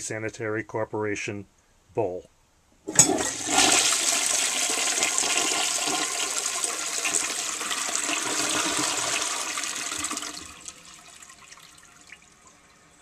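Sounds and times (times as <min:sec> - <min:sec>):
toilet flushing: 0:02.9 - 0:13.0.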